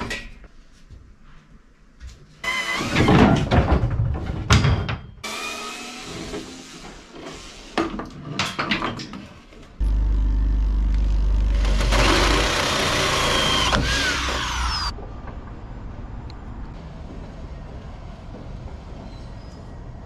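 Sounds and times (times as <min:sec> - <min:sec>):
electric drill boring: 0:05.2 - 0:06.3, 0:09.8 - 0:14.9.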